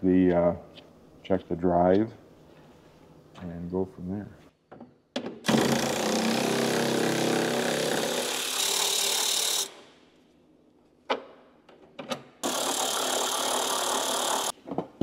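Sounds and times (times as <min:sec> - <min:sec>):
power tool running: 0:05.5 - 0:09.8, 0:12.4 - 0:14.5.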